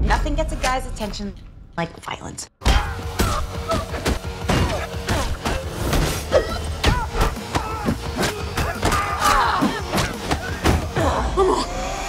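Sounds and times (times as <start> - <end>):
music: 0.0 - 12.0
shouts and grunts: 6.5 - 12.0.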